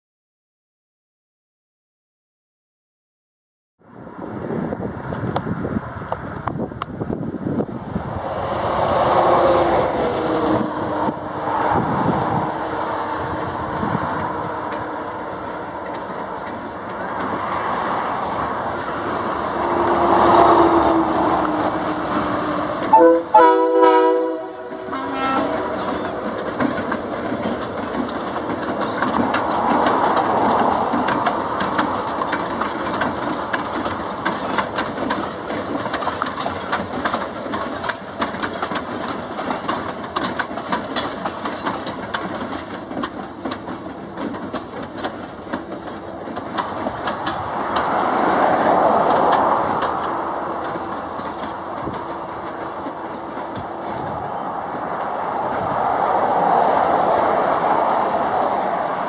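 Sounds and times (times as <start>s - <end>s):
diesel locomotive running past: 3.8s - 59.0s
train wheels clacking over rail joints: 8.4s - 59.0s
air horn blast: 22.9s - 25.8s.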